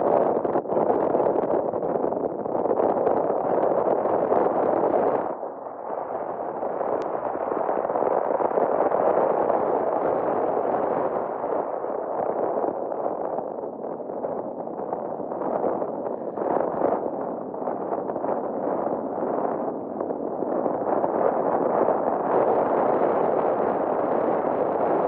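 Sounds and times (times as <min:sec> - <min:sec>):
wind on microphone: 0:00.0 - 0:25.0.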